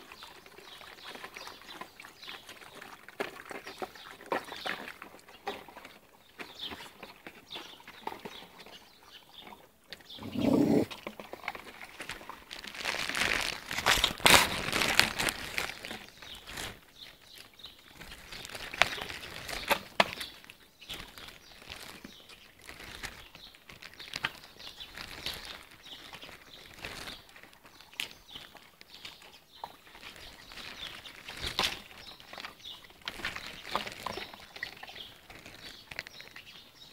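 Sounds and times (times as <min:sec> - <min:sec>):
plastic rustling: 0:12.5 - 0:16.8, 0:20.9 - 0:27.5, 0:30.0 - 0:36.5.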